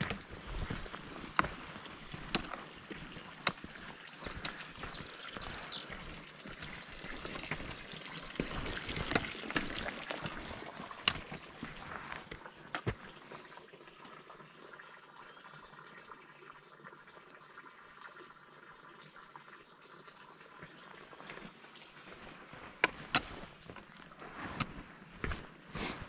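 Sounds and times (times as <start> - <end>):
footsteps on rocky trail: 0.0 - 6.0, 22.1 - 26.0
water pouring into plastic barrel: 0.0 - 24.9.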